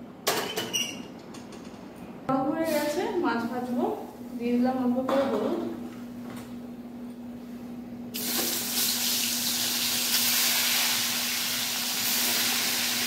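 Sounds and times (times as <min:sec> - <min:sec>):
fish hissing in hot oil: 0:08.2 - 0:13.0.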